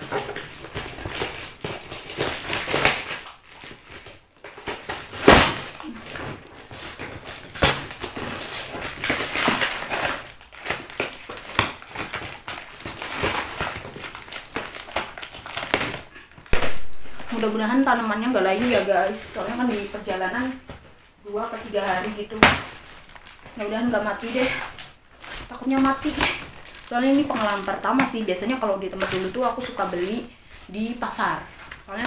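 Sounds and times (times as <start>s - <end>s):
packing tape tearing and crinkling: 0.0s - 32.0s.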